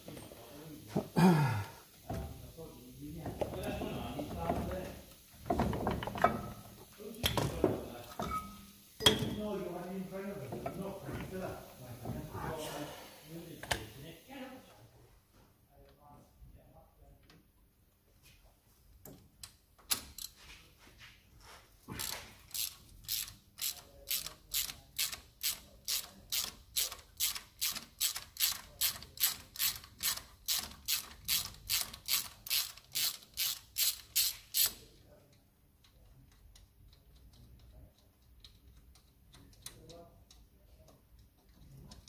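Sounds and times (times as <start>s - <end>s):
ratchet wrench clicking: 22.0s - 34.9s.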